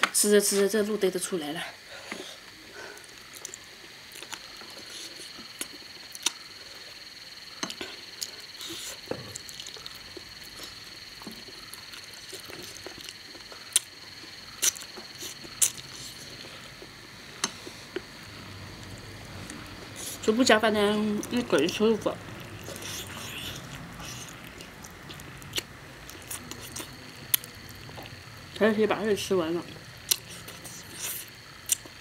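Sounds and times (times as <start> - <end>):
person chewing: 2.9 - 6.5, 7.6 - 18.1, 22.4 - 28.2, 30.1 - 32.0.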